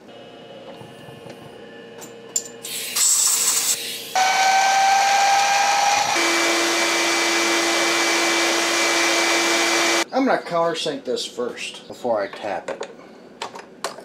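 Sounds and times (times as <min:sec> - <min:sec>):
milling machine cutting steel: 0:04.2 - 0:10.0.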